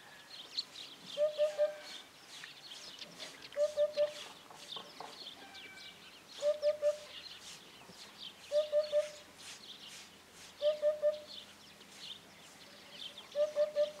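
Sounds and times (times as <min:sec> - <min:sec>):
small birds chirping faintly: 0:00.0 - 0:14.0
hoopoe low hooting song: 0:01.1 - 0:02.1, 0:03.5 - 0:04.3, 0:06.4 - 0:07.1, 0:08.5 - 0:09.3, 0:10.6 - 0:11.4, 0:13.2 - 0:14.0.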